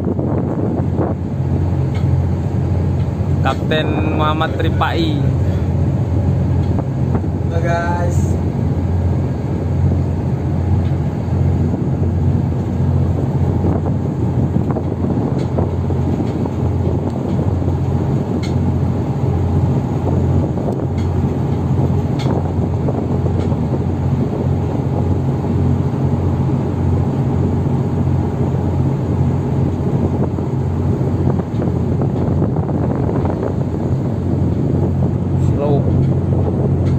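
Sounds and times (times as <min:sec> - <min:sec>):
diesel engines droning: 0:00.0 - 0:36.9.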